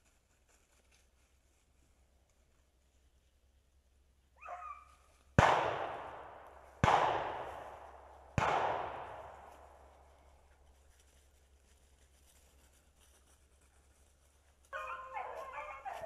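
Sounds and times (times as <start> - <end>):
shotgun shots echoing: 5.4 - 9.9
dog baying: 14.7 - 16.0.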